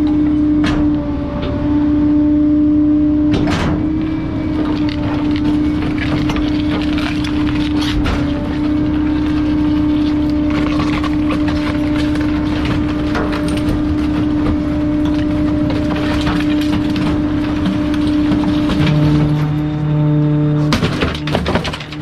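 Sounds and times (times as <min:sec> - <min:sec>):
hydraulic whine: 0:00.0 - 0:22.0
truck engine running: 0:00.0 - 0:22.0
cardboard crushing cracks: 0:04.5 - 0:19.1.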